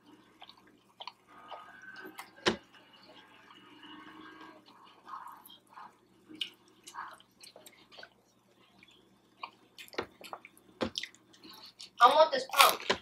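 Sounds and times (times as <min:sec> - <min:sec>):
wet chewing and lip smacks: 0:00.3 - 0:02.3, 0:06.3 - 0:12.0.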